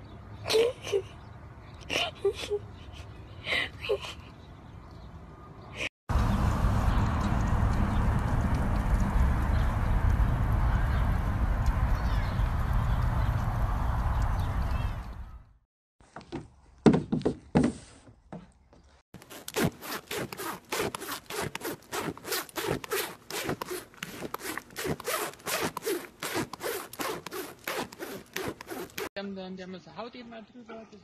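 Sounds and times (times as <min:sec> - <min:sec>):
horse nibbling fabric sleeve: 0:19.2 - 0:29.1.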